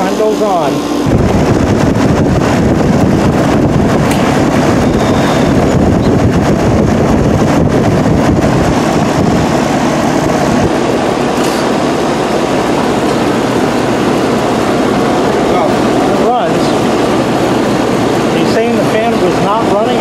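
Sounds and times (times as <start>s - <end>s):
air conditioner unit running: 0.0s - 20.0s
wind rumbling on microphone: 1.0s - 11.3s.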